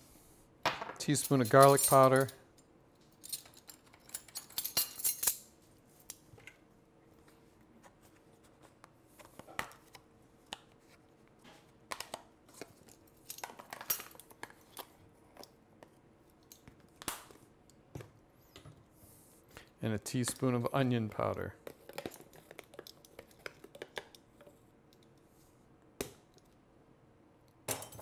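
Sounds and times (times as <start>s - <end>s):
metal measuring spoons clinking: 1.1s - 2.4s.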